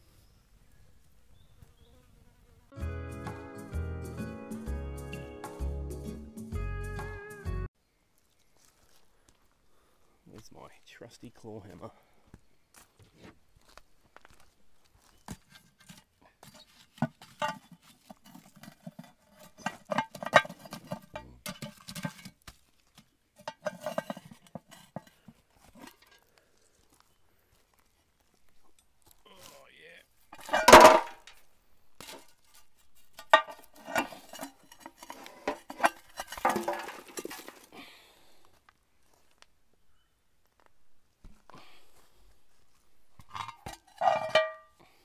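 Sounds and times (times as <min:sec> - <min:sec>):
hammer scraping coals: 0:15.0 - 0:27.0, 0:30.2 - 0:37.8, 0:43.1 - 0:45.0
cast iron pot clanking: 0:17.0 - 0:22.4, 0:23.4 - 0:26.2, 0:30.3 - 0:31.4, 0:33.0 - 0:37.7, 0:43.2 - 0:44.8
hammer clinking on metal lid: 0:43.6 - 0:44.7.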